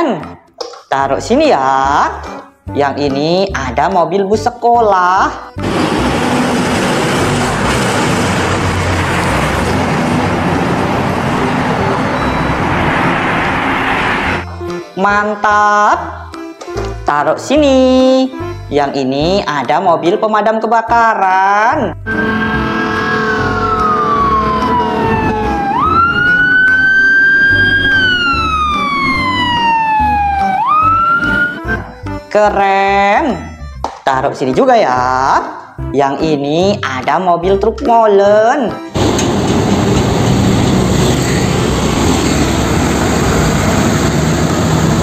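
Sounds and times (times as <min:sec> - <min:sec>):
tyre and road noise: 0:05.6 - 0:14.6, 0:22.1 - 0:31.9, 0:39.0 - 0:45.0
bus engine running: 0:05.6 - 0:14.8, 0:22.0 - 0:32.0, 0:38.9 - 0:45.0.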